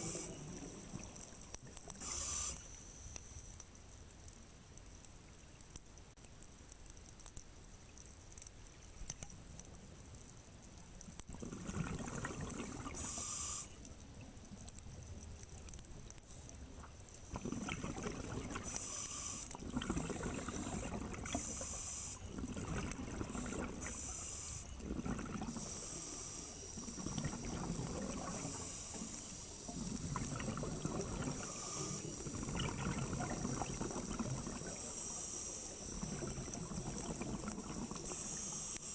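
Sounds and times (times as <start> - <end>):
exhaled bubbles rushing: 11.3 - 13.0, 17.3 - 18.7, 19.6 - 21.4, 22.3 - 24.0, 24.8 - 25.7, 26.8 - 28.6, 29.7 - 31.6, 32.2 - 34.8, 35.9 - 38.1.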